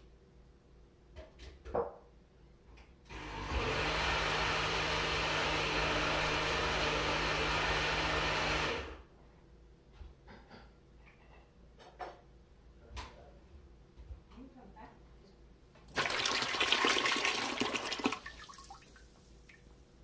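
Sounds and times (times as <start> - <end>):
appliance motor whirring hum: 3.1 - 9.0.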